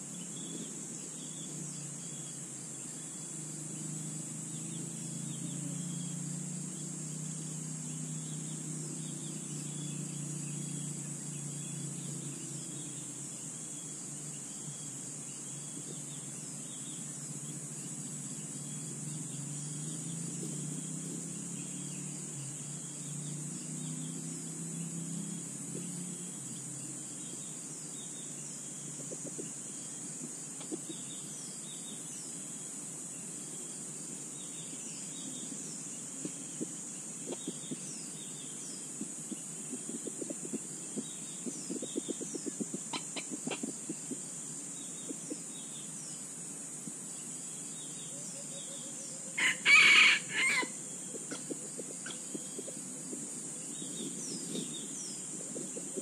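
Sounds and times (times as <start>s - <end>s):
insects droning: 0.0s - 56.0s
small birds chirping: 0.0s - 56.0s
rooster crowing: 49.4s - 50.8s.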